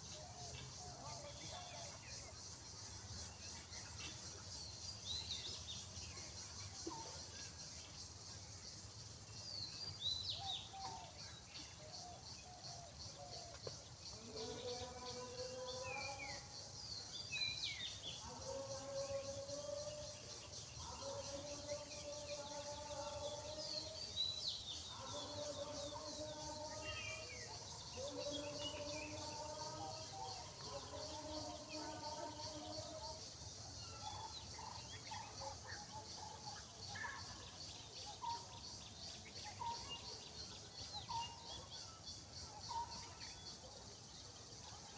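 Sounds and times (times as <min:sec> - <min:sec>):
insect chorus: 0:00.0 - 0:44.9.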